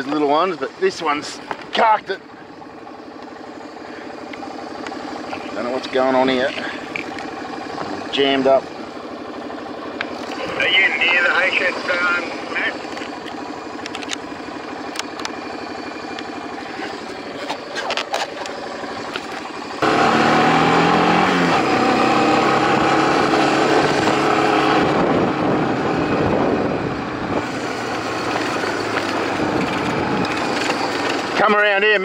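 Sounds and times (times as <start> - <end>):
quad bike engine: 0.0 - 32.0
sharp clicks: 12.9 - 14.3, 14.9 - 15.4.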